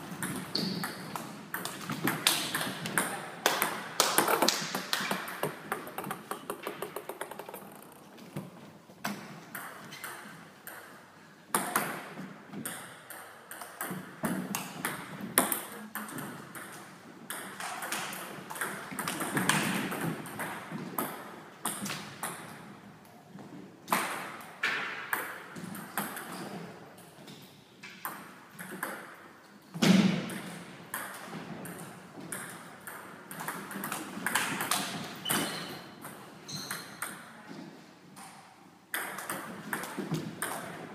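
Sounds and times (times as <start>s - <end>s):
table tennis ball clicking: 1.6s - 8.1s.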